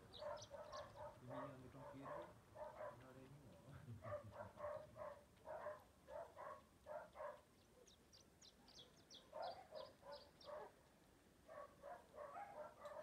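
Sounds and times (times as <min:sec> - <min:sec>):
small bird chirping: 0:00.0 - 0:02.8, 0:05.6 - 0:10.9
faint dog barking: 0:00.2 - 0:08.0, 0:08.6 - 0:13.0.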